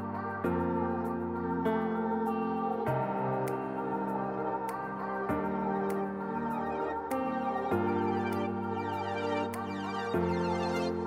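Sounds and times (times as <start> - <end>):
electronic music with synthesizer chords: 0.0 - 11.0.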